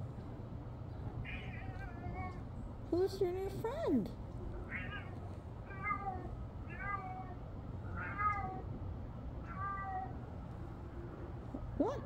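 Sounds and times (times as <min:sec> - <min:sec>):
cat meowing: 0:01.2 - 0:02.5, 0:04.6 - 0:08.8, 0:09.4 - 0:10.3.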